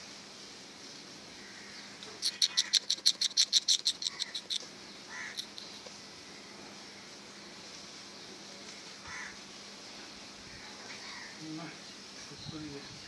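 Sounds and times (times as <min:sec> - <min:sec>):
animal chattering call: 0:02.2 - 0:05.8.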